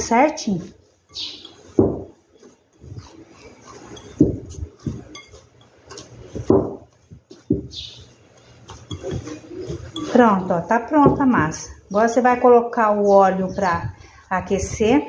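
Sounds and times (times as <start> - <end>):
hands kneading dough: 0.0 - 15.0
glass dish clinking: 4.8 - 5.4.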